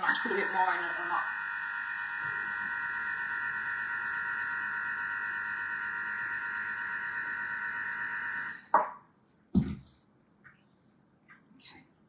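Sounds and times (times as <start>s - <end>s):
food processor motor whining: 0.0s - 8.6s.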